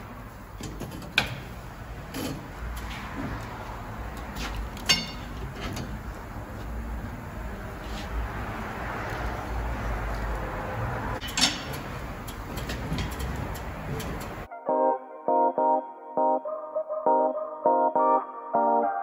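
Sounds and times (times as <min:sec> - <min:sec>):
metal tyre tools clinking: 0:04.1 - 0:06.0, 0:11.2 - 0:14.5.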